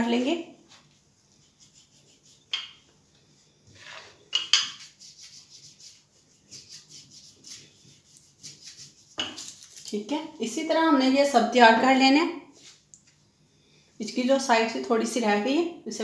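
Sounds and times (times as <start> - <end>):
rolling pin rubbing over bread: 0.7 - 2.6, 3.7 - 9.6.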